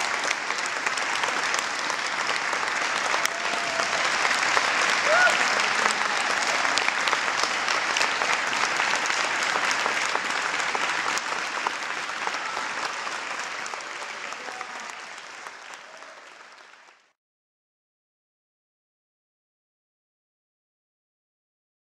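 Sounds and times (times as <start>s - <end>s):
audience applauding: 0.0s - 17.2s.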